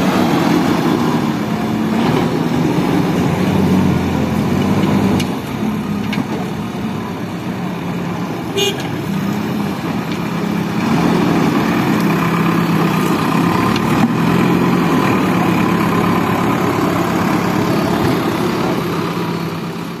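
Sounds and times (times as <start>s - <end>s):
diesel engine running: 0.0s - 20.0s
high horn toot: 8.5s - 8.9s.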